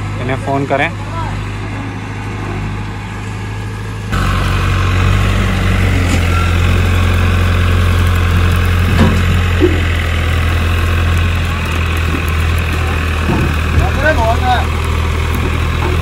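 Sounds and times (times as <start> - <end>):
heavy diesel engine running: 0.0 - 16.0.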